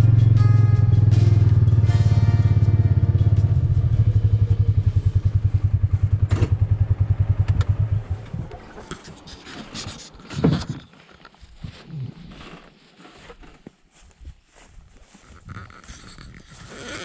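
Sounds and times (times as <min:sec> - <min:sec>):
vehicle engine throbbing: 0:00.0 - 0:09.9.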